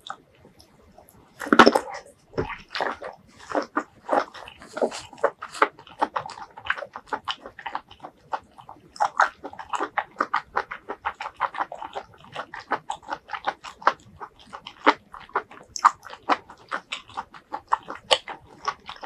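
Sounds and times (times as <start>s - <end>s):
chewing crunchy vegetables: 0.0s - 19.0s.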